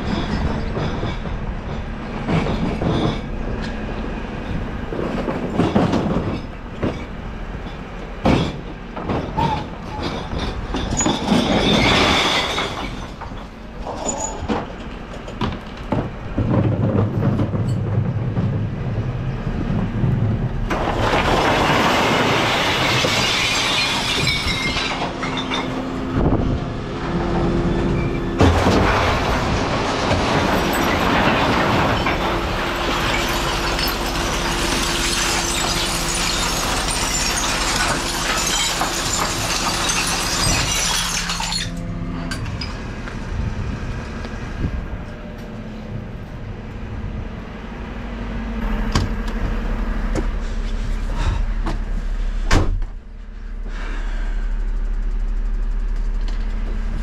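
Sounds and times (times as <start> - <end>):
glass bottles crashing and shattering: 10.0 - 13.4, 20.8 - 25.8, 28.4 - 41.8.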